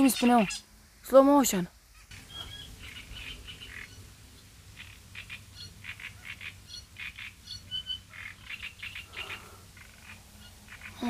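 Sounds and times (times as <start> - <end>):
frogs croaking: 0.0 - 11.0
high bird chirps: 1.9 - 4.1, 4.8 - 11.0.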